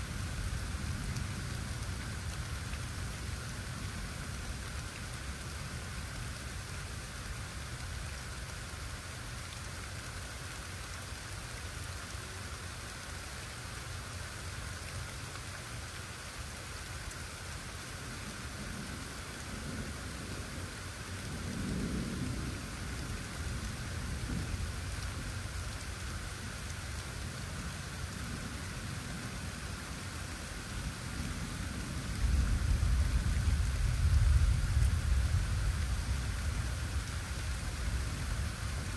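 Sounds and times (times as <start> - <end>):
steady rain hissing: 0.0 - 38.9
thunder rumbling: 21.4 - 25.3, 31.1 - 38.9.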